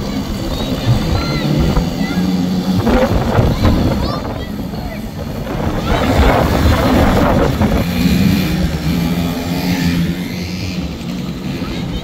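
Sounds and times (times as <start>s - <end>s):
rushing noise: 0.0s - 10.0s
quad bike engines: 0.0s - 12.0s.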